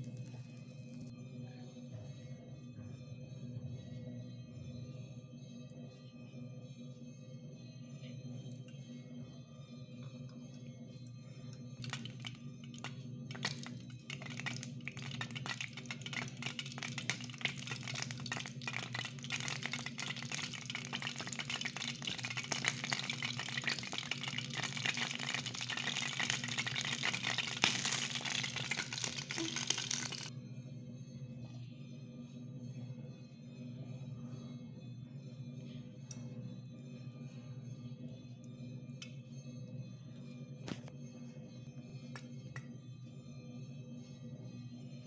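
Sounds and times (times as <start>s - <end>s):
hot oil crackling and sizzling: 11.8s - 30.3s.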